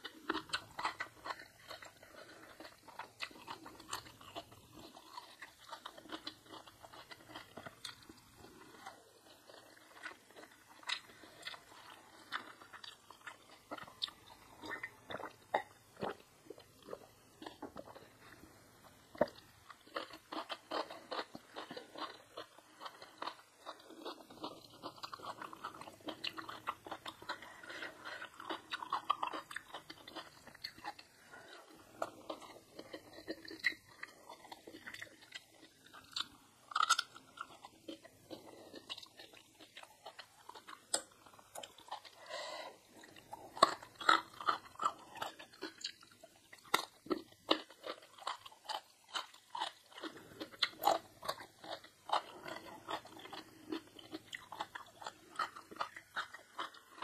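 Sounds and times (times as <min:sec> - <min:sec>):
person crunching and chewing food: 0:00.0 - 0:57.0.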